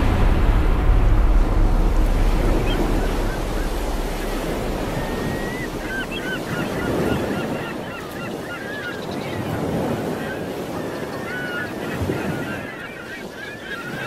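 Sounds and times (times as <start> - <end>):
low wind rumble: 0.0 - 8.2
ocean surf washing in: 0.0 - 14.0.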